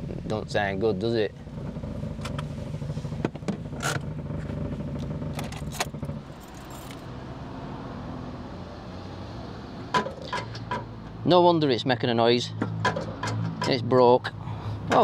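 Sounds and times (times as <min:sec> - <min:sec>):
car engine with broken exhaust: 0:00.0 - 0:15.0
metallic rattles: 0:05.3 - 0:07.1.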